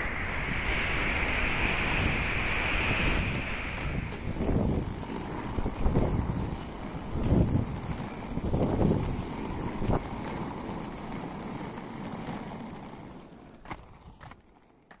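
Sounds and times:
wind buffeting microphone: 0.0s - 11.2s
low road rumble: 0.0s - 15.0s.

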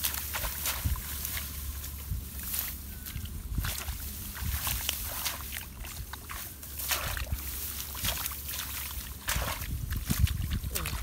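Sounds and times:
wet stalks rustling: 0.0s - 11.0s
hands splashing in muddy water: 3.2s - 11.0s.

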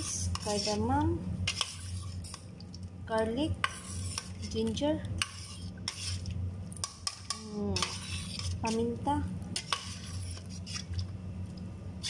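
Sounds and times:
ladle scraping metal pot: 0.0s - 2.4s, 3.6s - 6.3s, 7.0s - 8.9s, 9.6s - 11.0s.

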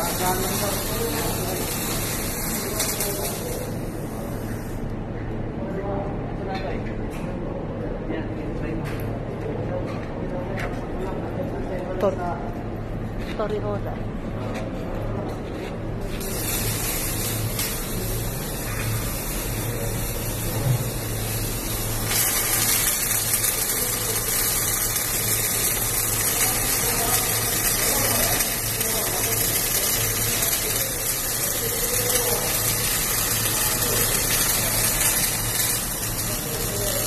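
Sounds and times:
welding arc crackling and hissing: 0.0s - 5.0s, 15.4s - 37.0s
low hum of machinery: 0.0s - 37.0s.

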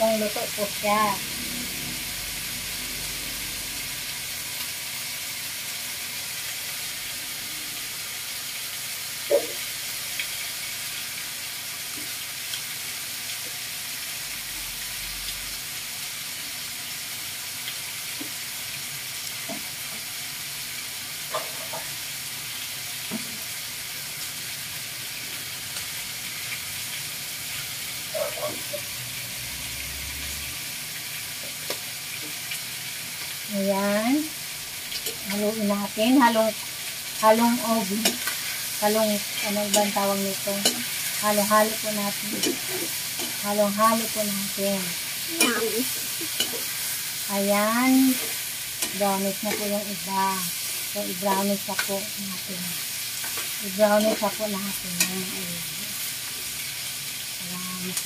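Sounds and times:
meat sizzling in hot oil: 0.0s - 58.0s.

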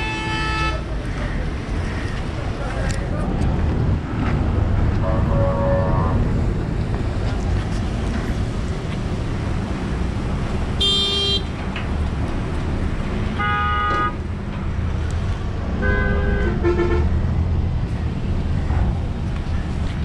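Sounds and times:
car horns honking: 0.0s - 0.9s, 5.0s - 6.2s, 10.8s - 11.5s, 13.4s - 14.2s, 15.8s - 17.1s
vehicle engines rumbling: 0.0s - 20.0s.

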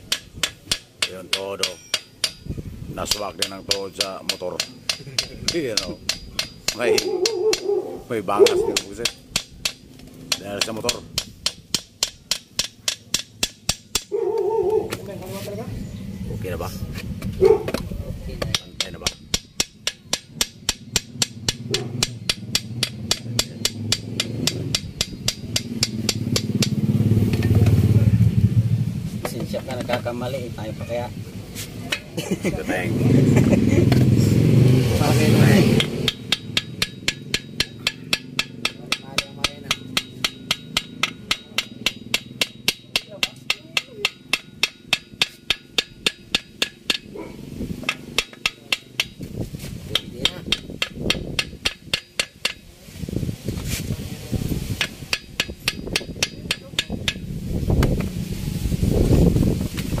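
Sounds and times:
hammer tapping on metal: 0.0s - 14.9s, 17.4s - 27.8s, 31.9s - 32.2s, 35.2s - 52.7s, 54.8s - 57.3s
sharp metallic knocks: 0.0s - 15.0s, 17.0s - 31.1s, 31.8s - 32.2s, 33.8s - 52.7s, 54.7s - 58.1s
engine drone: 21.3s - 29.3s, 32.7s - 42.9s.

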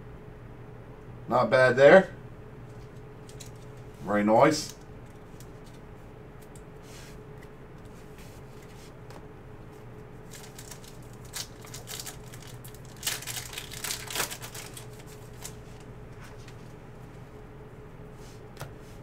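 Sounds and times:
faint hum: 0.0s - 19.0s
foil wrapper crinkling and tearing: 10.2s - 16.6s.

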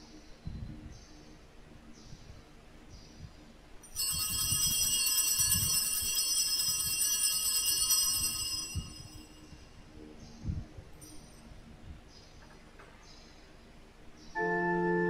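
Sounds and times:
handbells jingling: 3.8s - 9.5s.

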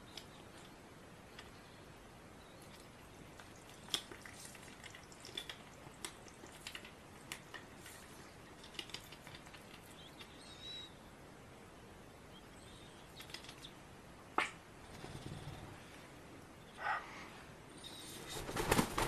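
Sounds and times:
duck bill nibbling clicks: 2.6s - 10.4s, 13.2s - 13.7s.

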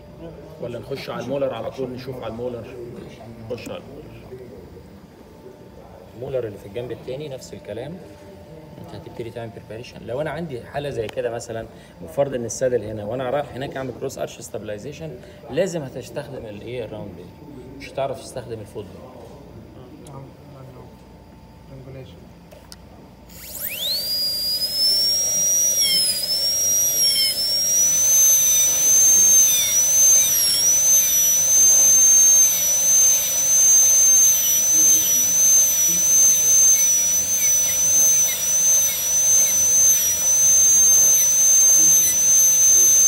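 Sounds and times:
dental drill whining: 23.3s - 43.0s.

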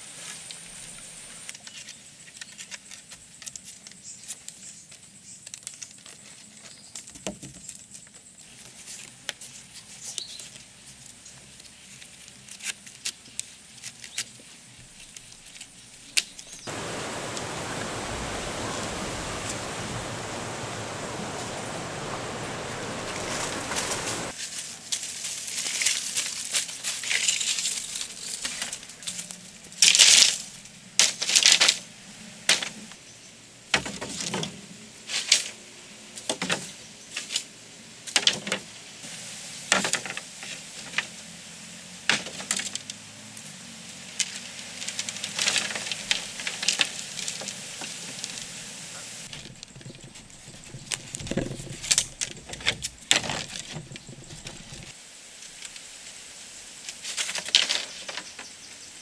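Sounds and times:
steady hiss: 0.0s - 2.4s, 7.6s - 59.0s
bamboo poles knocking and scraping: 33.7s - 35.5s, 36.2s - 37.4s, 39.7s - 41.1s, 44.2s - 48.4s, 49.2s - 55.8s, 57.0s - 58.5s.

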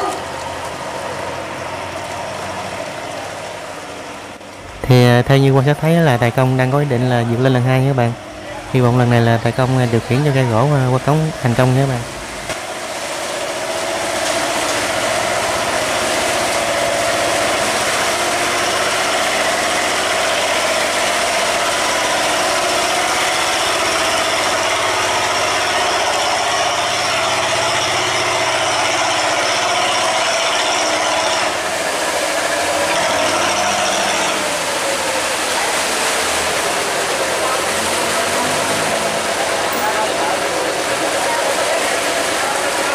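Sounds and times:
boat engine running hard: 0.0s - 42.9s
water churning along hull: 0.0s - 42.9s.

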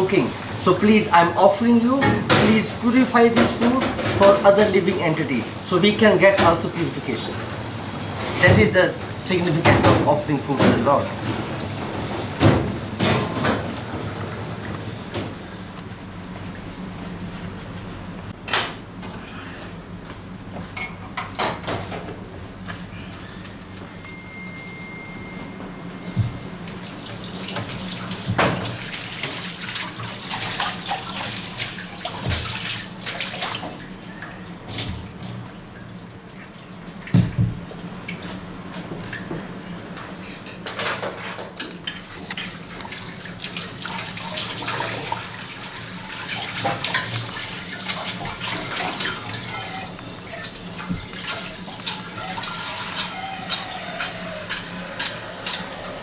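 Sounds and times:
tap water running into sink: 26.1s - 33.8s, 42.4s - 56.0s
dishes being scrubbed: 42.3s - 56.0s.

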